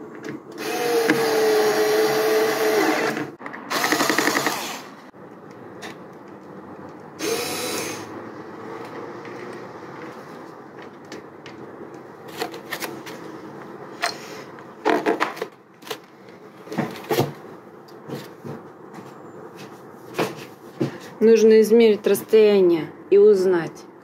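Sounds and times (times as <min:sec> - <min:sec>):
cordless screwdriver running: 0:00.6 - 0:04.9, 0:07.2 - 0:08.1.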